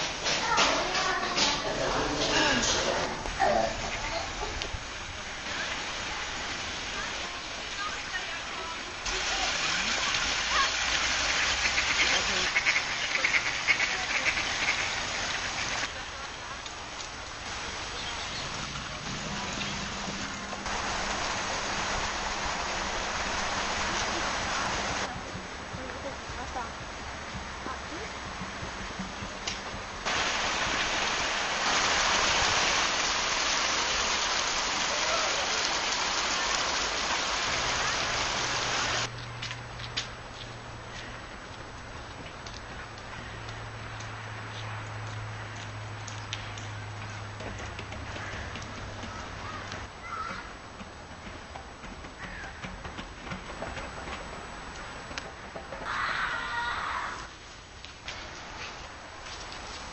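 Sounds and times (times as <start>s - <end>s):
steady hissing rushing noise: 0.0s - 39.1s
water spilling into a pond: 4.8s - 25.1s, 30.0s - 39.1s
ducks quacking: 10.5s - 15.9s.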